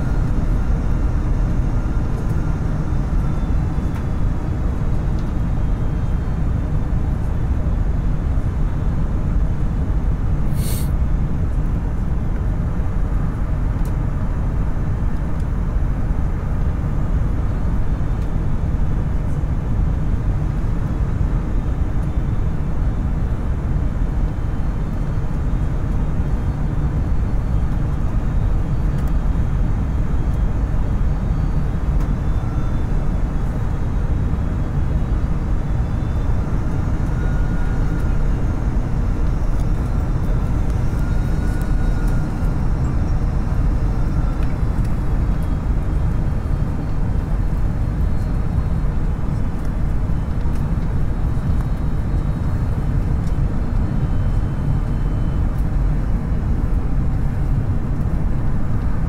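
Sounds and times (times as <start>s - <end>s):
rushing air: 10.5s - 10.9s
jet engines rumbling: 29.5s - 59.0s.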